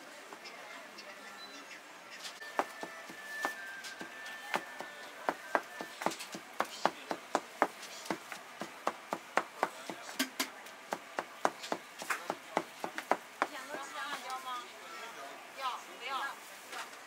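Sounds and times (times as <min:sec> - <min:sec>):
cleaver chopping on cutting board: 0:02.6 - 0:13.6.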